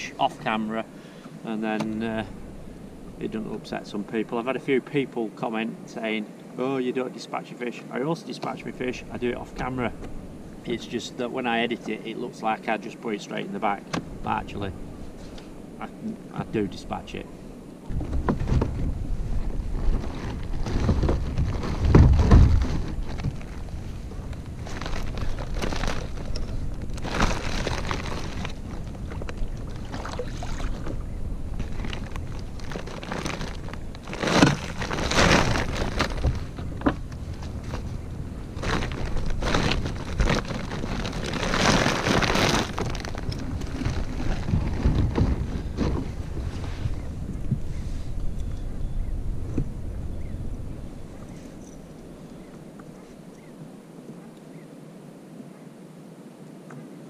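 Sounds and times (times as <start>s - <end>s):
wind buffeting microphone: 13.7s - 54.6s
rustling and knocking of fishing gear: 17.9s - 48.8s.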